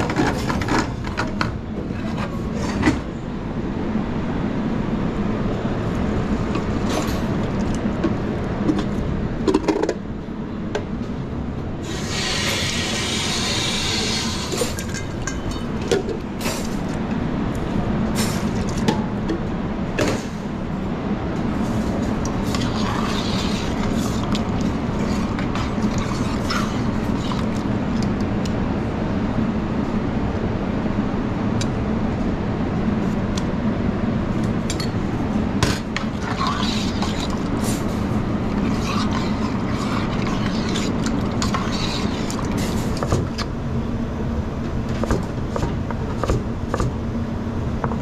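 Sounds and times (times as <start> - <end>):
loud hiss: 11.8 - 14.5.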